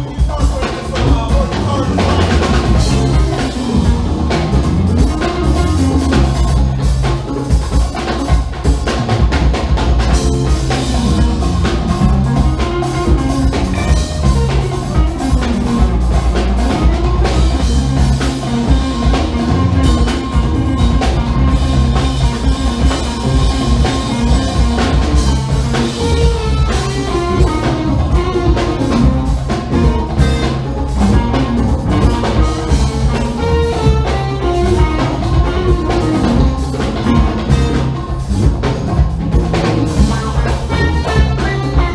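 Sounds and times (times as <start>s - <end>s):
funk band playing: 0.0s - 41.9s
tenor saxophone: 10.0s - 41.9s.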